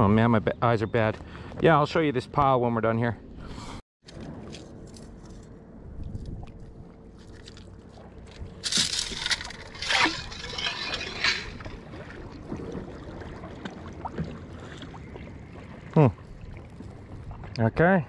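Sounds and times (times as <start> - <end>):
water sloshing and splashing: 6.0 - 17.9.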